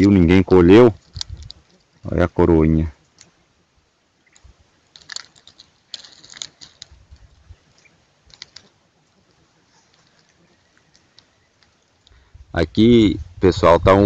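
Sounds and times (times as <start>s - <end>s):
dry leaves crackling and rustling: 4.2s - 12.2s.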